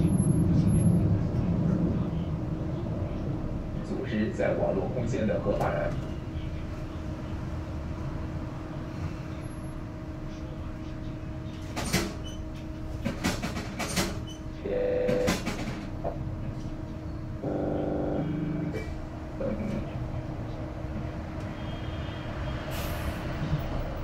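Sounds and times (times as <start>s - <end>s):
bus drive hum: 0.0s - 24.0s
short buzzing tones: 17.4s - 18.8s.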